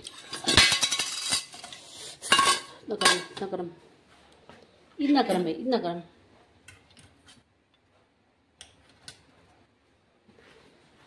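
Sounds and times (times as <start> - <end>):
metal kitchenware clattering: 0.0 - 3.6.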